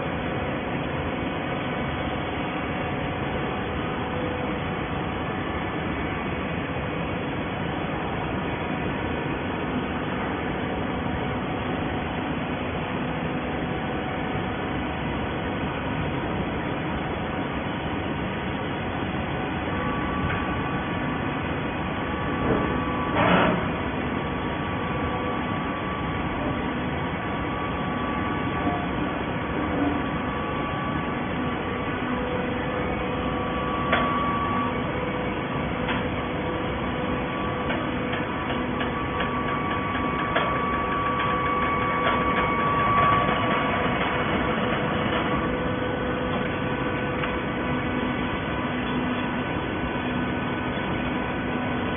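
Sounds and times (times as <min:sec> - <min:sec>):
baler machine hum: 0:00.0 - 0:51.9
faint machine whine: 0:00.0 - 0:51.9
machine clatter: 0:37.6 - 0:45.6.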